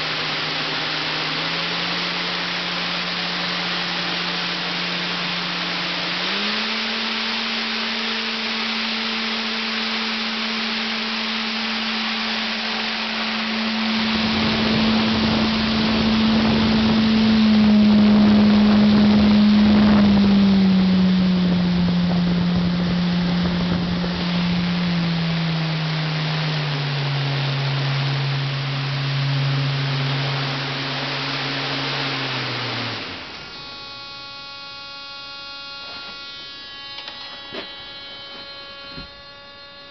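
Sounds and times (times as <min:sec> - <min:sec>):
electric fan motor whirring: 0:00.0 - 0:39.9
thin electrical buzz: 0:00.0 - 0:39.9
wind buffeting microphone: 0:13.9 - 0:25.0.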